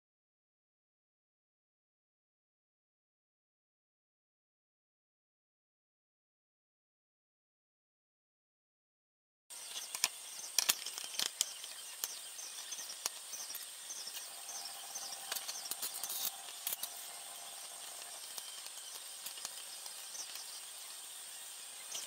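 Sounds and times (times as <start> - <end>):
steady high hiss: 9.5 - 22.0
small metal clicks and knocks: 9.7 - 14.3.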